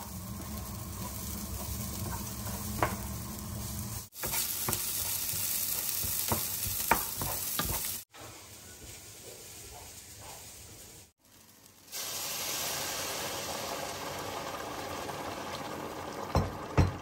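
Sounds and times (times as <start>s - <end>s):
water hissing in hot pan: 0.0s - 9.0s, 10.6s - 16.4s
electric kettle boiling: 12.0s - 17.0s.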